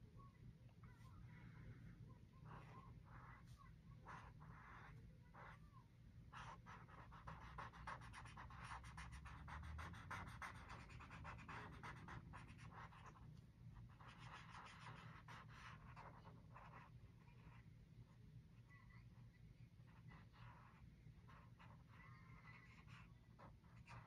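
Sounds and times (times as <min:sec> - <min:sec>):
drawing tool scratching paper: 0:06.4 - 0:13.2, 0:13.9 - 0:16.9.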